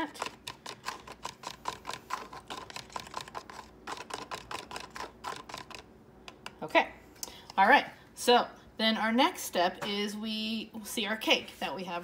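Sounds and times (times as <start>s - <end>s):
utensil stirring in plastic cup: 0.0s - 5.9s.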